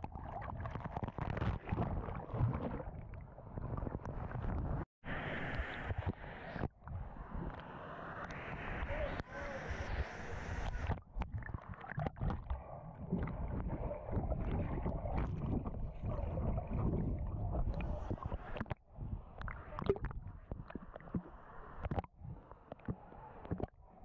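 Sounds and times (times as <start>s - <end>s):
muffled underwater sloshing: 0.0s - 4.8s, 10.4s - 24.0s.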